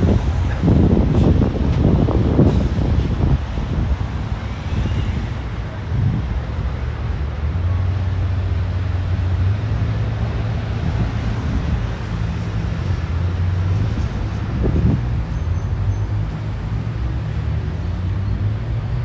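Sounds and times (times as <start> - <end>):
city street traffic rumble: 0.0 - 19.0.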